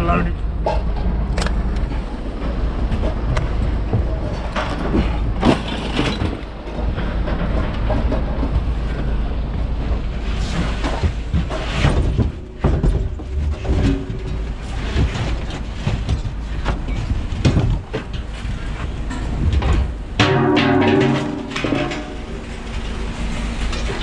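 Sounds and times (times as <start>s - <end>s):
steady low rumble: 0.0s - 24.0s
scrap metal clanking: 10.4s - 17.2s, 18.0s - 24.0s.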